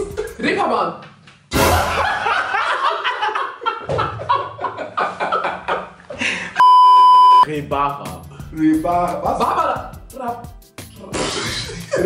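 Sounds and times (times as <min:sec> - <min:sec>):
group laughing: 0:01.7 - 0:06.6, 0:11.2 - 0:12.0
steady electronic beep: 0:06.6 - 0:07.5.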